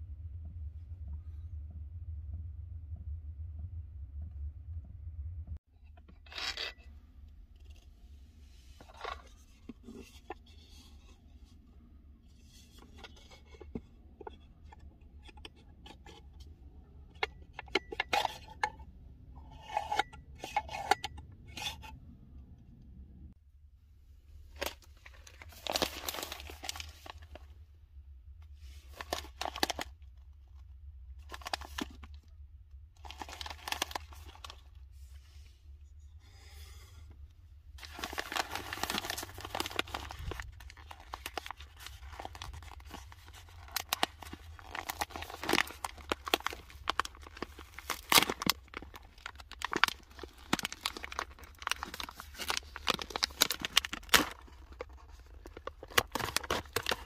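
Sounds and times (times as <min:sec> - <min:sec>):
steady low hum: 0:00.0 - 0:06.2
foil bag crinkling and tearing: 0:24.6 - 0:27.4, 0:28.9 - 0:29.9, 0:31.2 - 0:32.1, 0:33.0 - 0:34.7, 0:37.8 - 0:57.0.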